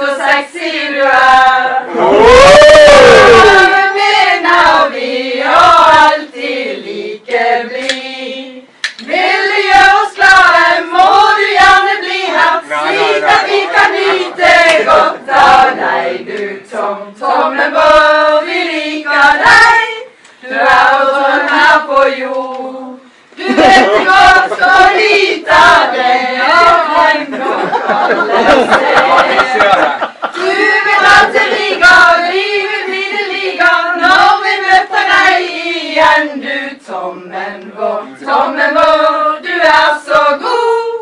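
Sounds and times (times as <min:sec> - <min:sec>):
women singing together: 0:00.0 - 0:41.0
hand claps: 0:07.8 - 0:08.0, 0:08.8 - 0:09.1.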